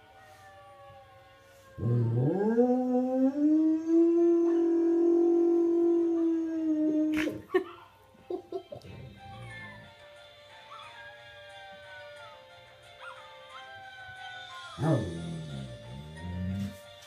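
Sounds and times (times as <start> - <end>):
dog howling: 0.0 - 7.2, 13.0 - 16.7
puppies howling on video: 0.0 - 12.4, 13.0 - 16.8.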